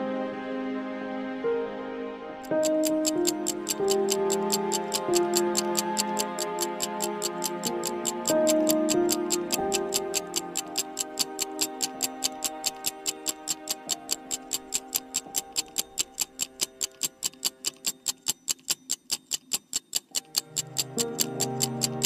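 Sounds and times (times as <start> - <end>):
soft background music: 0.0 - 22.0
rapid timer ticking: 2.4 - 22.0.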